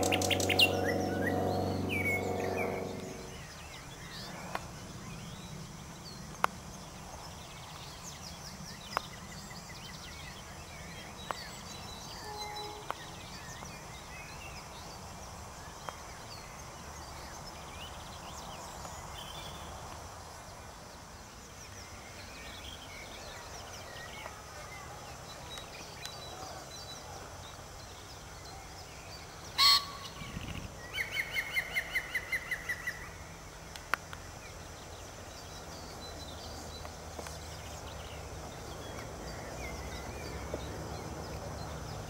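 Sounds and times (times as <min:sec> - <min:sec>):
steady low rumble: 0:00.0 - 0:03.4.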